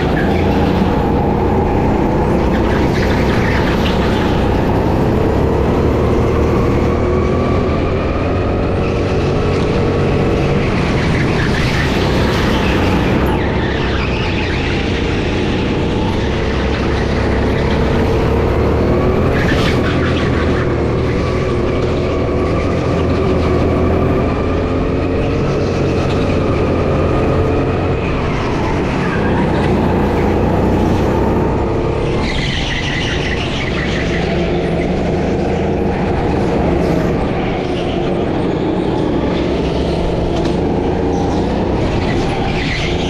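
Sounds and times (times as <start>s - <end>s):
go-kart engine running hard: 0.0s - 43.0s.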